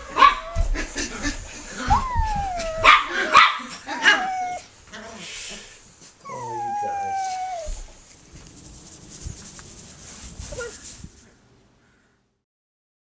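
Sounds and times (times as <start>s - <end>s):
puppies whining: 1.7s - 4.7s, 6.2s - 8.0s
puppies yipping: 1.8s - 4.6s, 6.2s - 7.9s.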